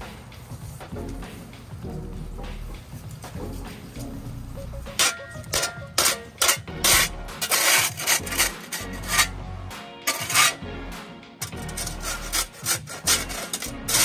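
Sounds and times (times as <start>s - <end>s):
shovel scraping concrete: 5.0s - 9.4s, 10.0s - 10.8s, 11.4s - 14.0s.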